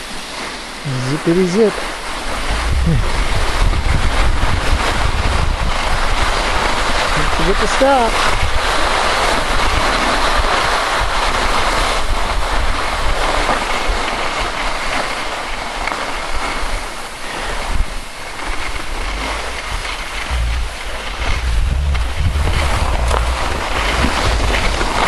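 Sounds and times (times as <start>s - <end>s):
skis sliding over snow: 0.0s - 25.0s
wind buffeting microphone: 2.0s - 13.3s, 17.5s - 25.0s.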